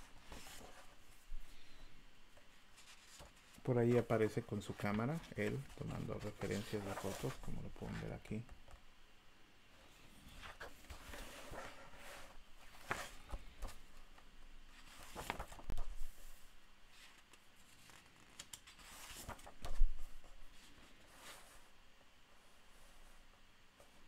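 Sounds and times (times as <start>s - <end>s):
book pages turning: 0.2s - 1.0s, 2.8s - 8.1s, 10.3s - 13.9s, 14.7s - 16.4s, 17.0s - 20.2s.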